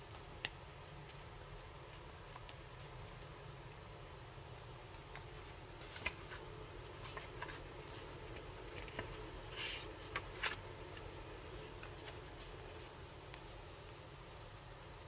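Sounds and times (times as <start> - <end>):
paper and card rustling: 5.0 - 13.0.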